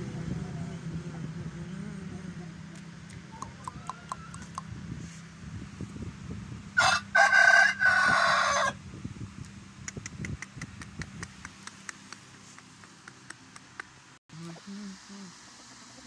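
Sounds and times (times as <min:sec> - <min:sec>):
rooster crowing: 0:06.8 - 0:08.8.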